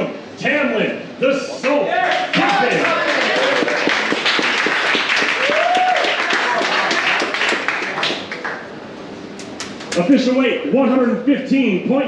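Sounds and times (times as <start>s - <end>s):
person shouting: 1.9s - 3.4s
crowd applauding and cheering: 2.0s - 8.7s.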